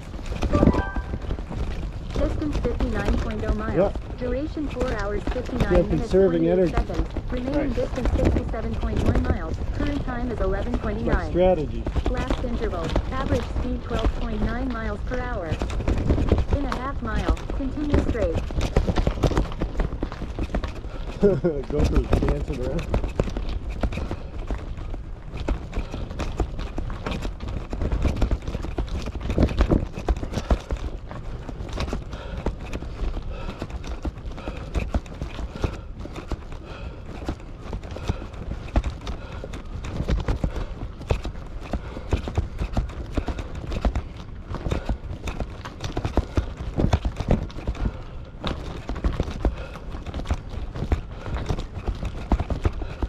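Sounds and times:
bike rattling over road: 0.0s - 53.0s
wind rumbling on microphone: 0.0s - 53.0s
bicycle clicking and knocking: 6.4s - 53.0s.

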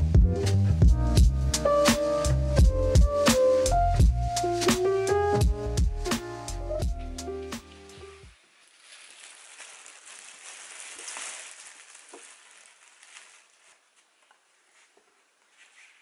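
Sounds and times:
plastic bag rustling: 7.7s - 16.0s.

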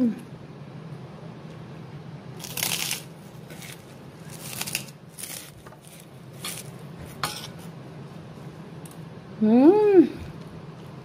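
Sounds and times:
crackers crunching: 2.4s - 6.8s.

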